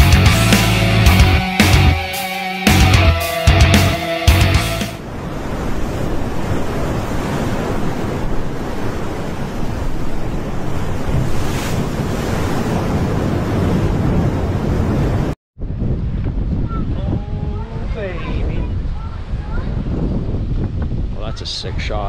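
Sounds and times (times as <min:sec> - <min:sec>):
ocean waves breaking: 0:00.6 - 0:15.4.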